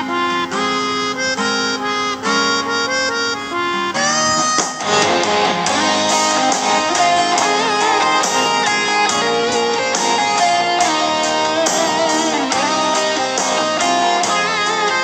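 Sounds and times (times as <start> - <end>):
guitar: 0.0 - 15.0
harmonica melody: 0.0 - 15.0
pop band playing: 4.0 - 15.0.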